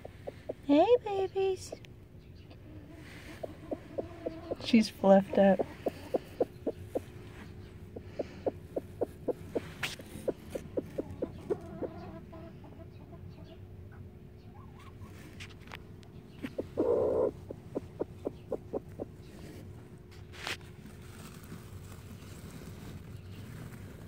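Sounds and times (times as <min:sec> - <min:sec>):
hen giving short low clucks: 0:02.9 - 0:12.5, 0:16.4 - 0:19.1.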